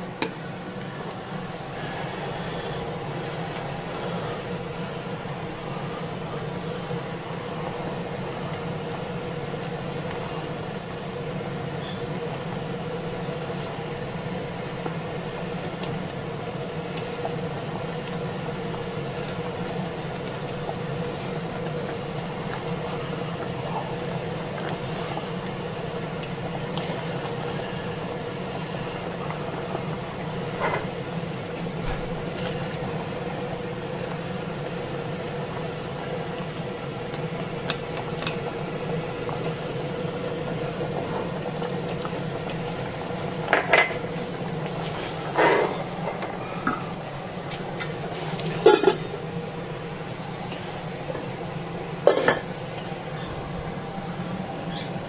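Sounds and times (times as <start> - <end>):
steady hum: 0.0 - 55.0.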